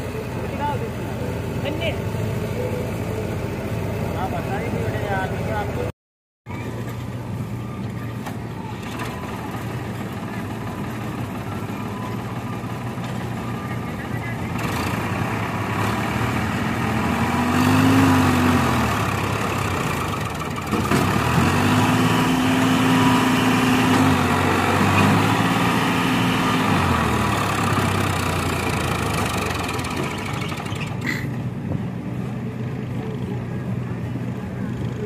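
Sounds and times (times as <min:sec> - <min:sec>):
tractor diesel engine revving: 0:08.6 - 0:31.4.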